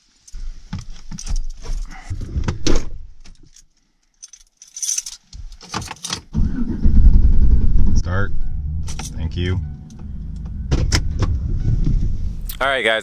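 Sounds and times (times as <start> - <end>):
keys jangling: 3.4 - 6.3, 8.9 - 9.2
knocks and rustling: 8.8 - 12.4.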